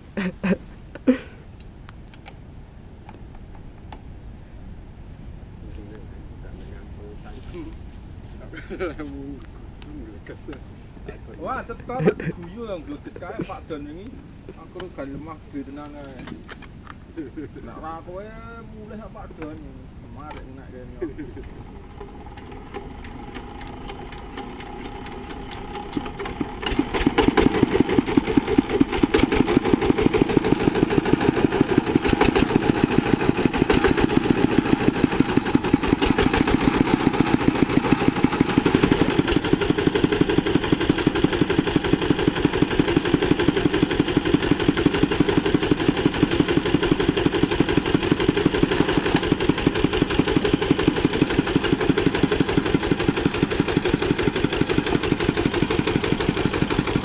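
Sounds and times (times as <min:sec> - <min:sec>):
diesel engine chugging: 0:21.2 - 0:57.0.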